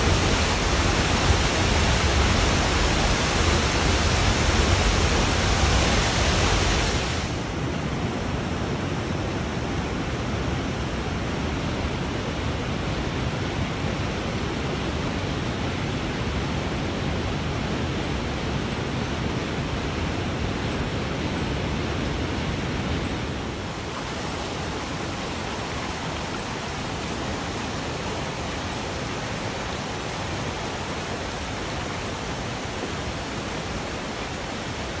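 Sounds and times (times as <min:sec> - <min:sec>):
creek water rushing over rocks: 0:00.0 - 0:35.0.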